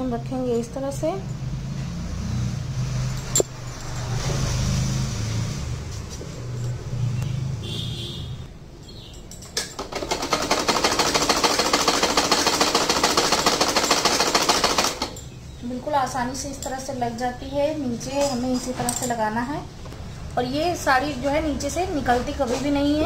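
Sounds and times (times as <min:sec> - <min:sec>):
sewing machine clatter: 0:09.6 - 0:15.2.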